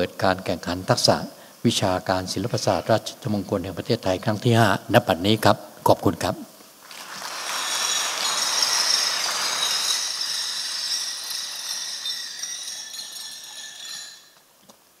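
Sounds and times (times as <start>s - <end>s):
dense hiss: 0.0s - 15.0s
jingling bell-like shimmer: 6.9s - 14.5s.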